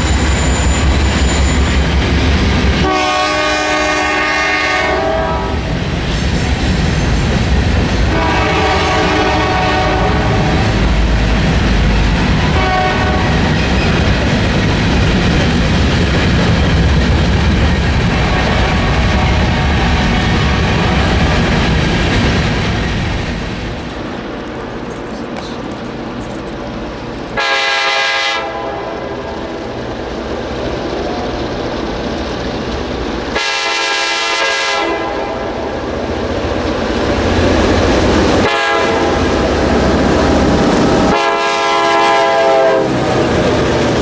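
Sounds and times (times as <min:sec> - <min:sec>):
freight train rolling past: 0:00.0 - 0:44.0
locomotive horn blasts: 0:02.8 - 0:05.6, 0:08.1 - 0:10.6, 0:12.5 - 0:13.5, 0:18.1 - 0:19.8, 0:27.4 - 0:29.2, 0:33.3 - 0:35.6, 0:38.4 - 0:39.2, 0:41.1 - 0:42.9.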